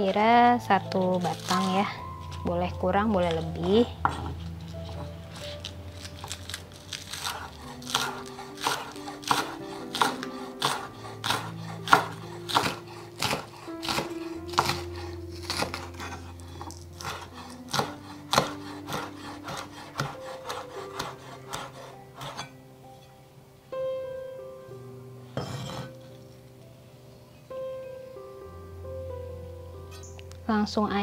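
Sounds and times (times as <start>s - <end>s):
knife chopping on wooden board: 4.0s - 22.5s.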